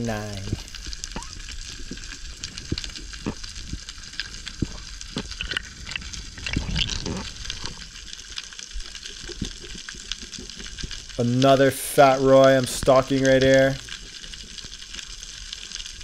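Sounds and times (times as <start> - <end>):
snapping shrimp clicks underwater: 0.6 - 11.2.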